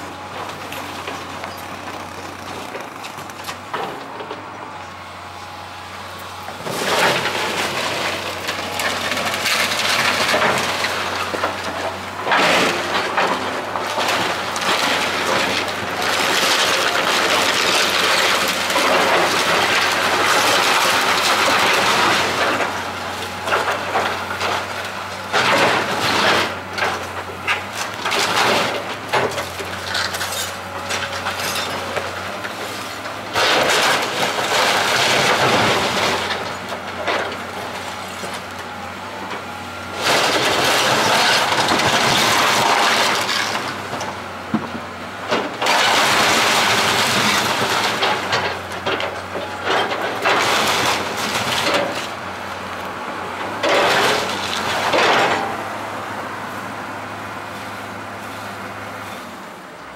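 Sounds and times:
excavator engine hum: 0:00.0 - 0:59.9
timber cracking and crashing down: 0:33.3 - 0:37.5, 0:40.0 - 0:52.8, 0:53.6 - 0:55.7.

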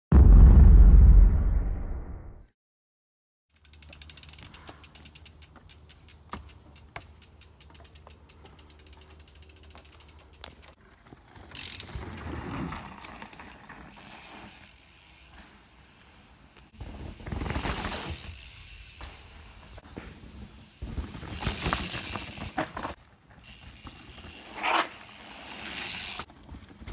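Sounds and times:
bike freehub clicking: 0:03.5 - 0:10.8, 0:11.5 - 0:12.1, 0:20.6 - 0:26.3.

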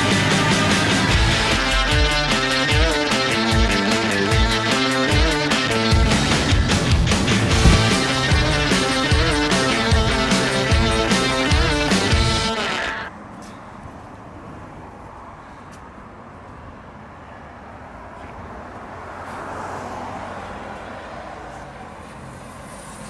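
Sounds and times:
music: 0:00.0 - 0:13.1
street traffic noise: 0:00.0 - 0:23.0
vehicle going by: 0:05.8 - 0:09.8.

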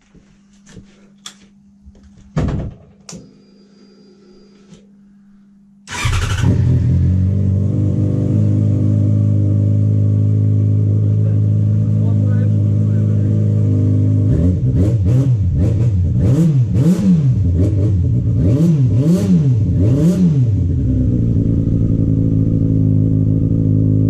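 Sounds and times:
faint steady hum: 0:00.0 - 0:05.9
motorcycle engine starting and idling: 0:05.9 - 0:13.3, 0:19.3 - 0:24.0.

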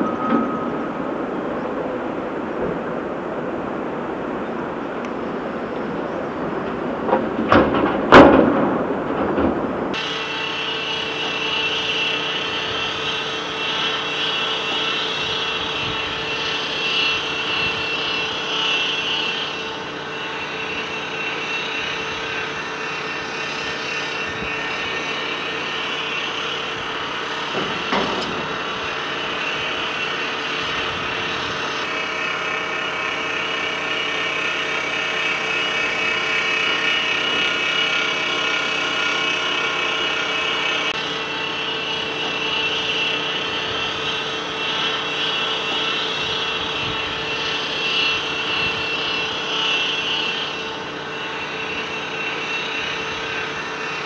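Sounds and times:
sharp metal clank: 0:00.0 - 0:02.3
diesel machinery running: 0:00.0 - 0:54.0
high machine whine: 0:00.0 - 0:54.0.

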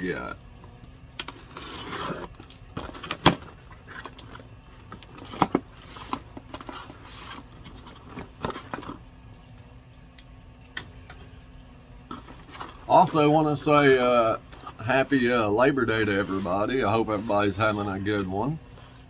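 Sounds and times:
packaging rustling and crinkling: 0:01.3 - 0:09.0, 0:12.1 - 0:14.8.

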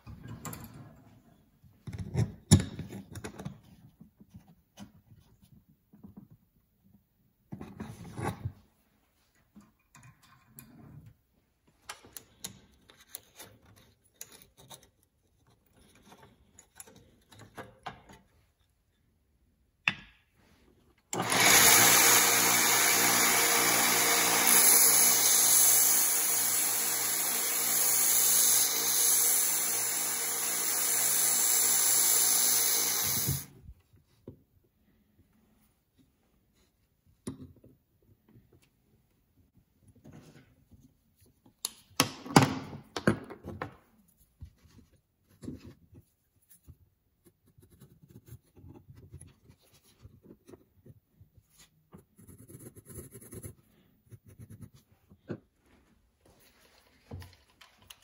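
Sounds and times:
belt sander grinding steel: 0:21.2 - 0:33.5.

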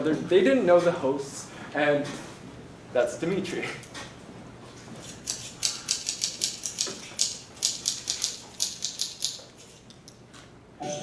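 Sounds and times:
typewriter key clacks: 0:05.6 - 0:09.4.

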